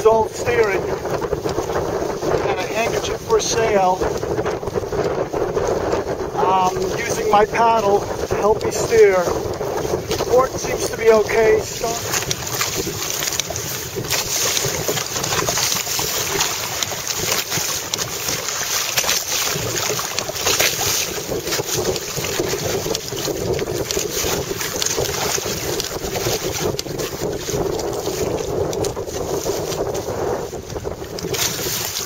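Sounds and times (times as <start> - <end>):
water slapping against hulls: 0.0 - 32.0
wind noise on microphone: 0.0 - 32.0.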